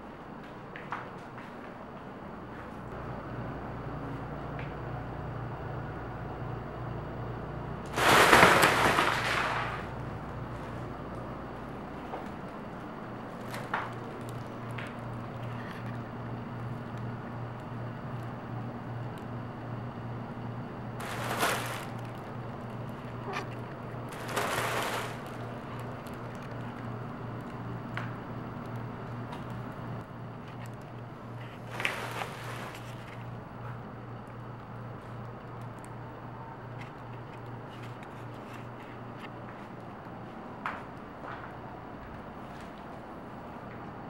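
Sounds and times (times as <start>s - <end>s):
steady low hum: 0.0s - 44.0s
fabric tunnel rustling: 7.9s - 10.9s, 21.0s - 26.8s, 31.3s - 33.3s.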